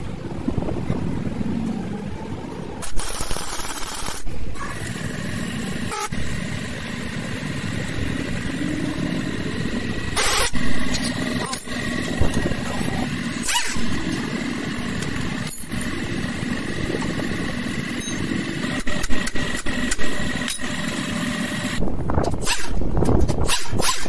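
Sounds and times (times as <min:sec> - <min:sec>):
motor humming: 0:04.2 - 0:22.1
sharp metallic clicks: 0:17.9 - 0:24.0.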